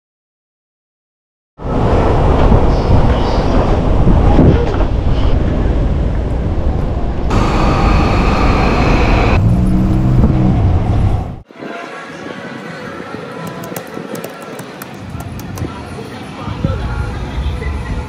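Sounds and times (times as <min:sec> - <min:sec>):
traffic rumble: 0:01.6 - 0:11.4
low hum: 0:06.3 - 0:11.4.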